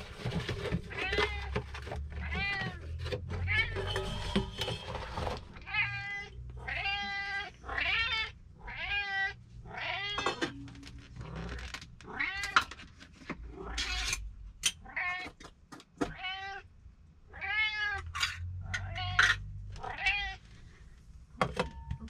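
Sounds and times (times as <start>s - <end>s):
cat meowing loudly: 0.9s - 4.5s, 5.6s - 10.5s, 16.0s - 16.6s, 18.8s - 20.4s.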